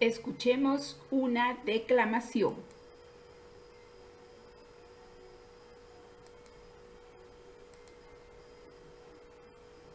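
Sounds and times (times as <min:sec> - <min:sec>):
faint steady hum: 0:00.0 - 0:09.9.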